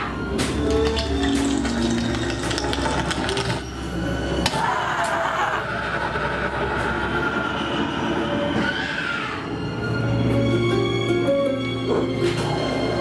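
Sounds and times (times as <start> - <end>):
clattering knocks and rattles: 0.4 - 3.8
person shrieking: 4.5 - 5.9, 8.5 - 9.5.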